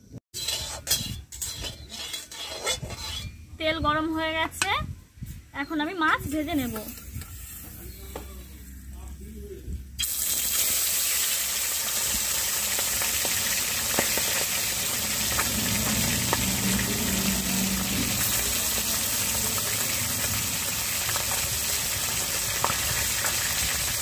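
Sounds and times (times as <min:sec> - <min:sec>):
fish sizzling in hot oil: 0:10.0 - 0:24.0.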